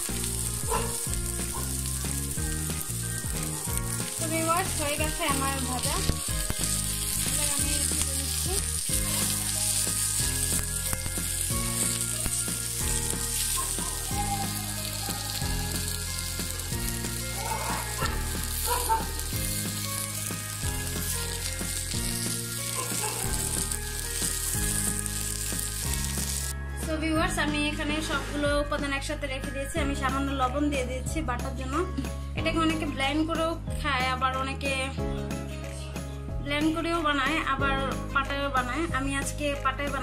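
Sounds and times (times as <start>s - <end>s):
vegetables sizzling in oil: 0.0s - 26.6s
background music: 0.0s - 40.0s.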